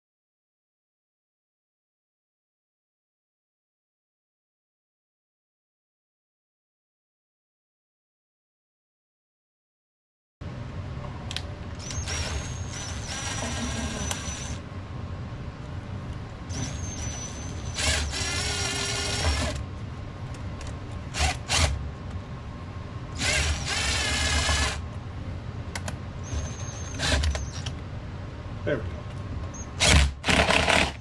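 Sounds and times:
cordless driver motor whine: 0:11.8 - 0:14.6, 0:16.5 - 0:19.6.

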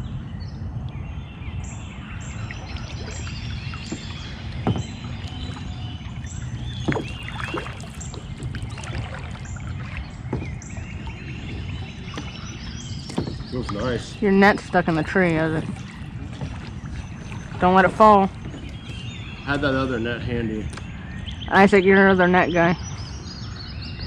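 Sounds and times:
birds chirping: 0:00.0 - 0:24.0
water sloshing against kayak: 0:01.7 - 0:24.0
sharp knocks: 0:03.9 - 0:05.2, 0:06.8 - 0:07.3, 0:10.3 - 0:10.6, 0:13.1 - 0:13.8.

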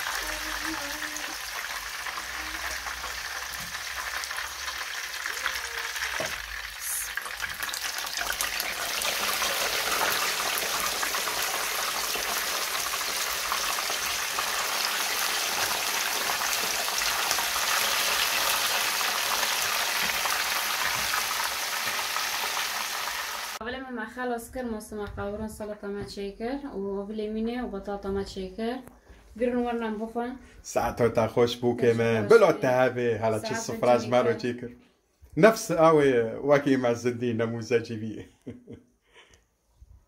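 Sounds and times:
hot oil sizzling: 0:00.0 - 0:23.6.

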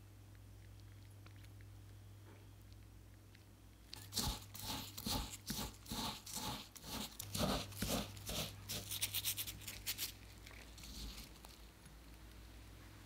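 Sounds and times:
fingers rubbing crumbs in glass: 0:04.0 - 0:10.2.

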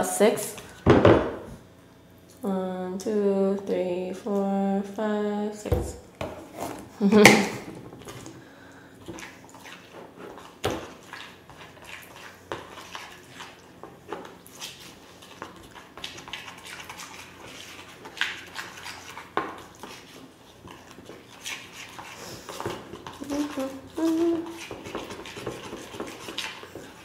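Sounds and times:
metal spoon stirring in a bowl: 0:09.1 - 0:27.0.

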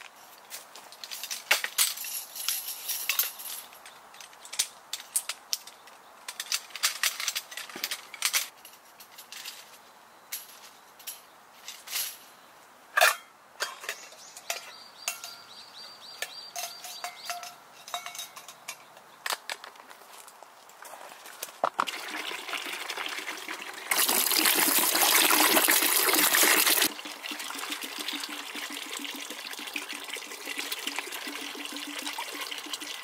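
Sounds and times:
light clinks of items hung: 0:00.5 - 0:12.3, 0:13.0 - 0:19.7
metal rack poles clicking and clinking: 0:01.0 - 0:12.3, 0:13.0 - 0:15.5, 0:16.2 - 0:18.9.

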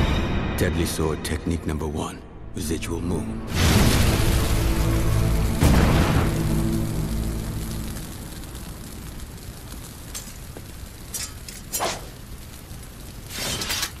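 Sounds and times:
low rumble: 0:02.3 - 0:13.3
fire hissing: 0:03.5 - 0:14.0.

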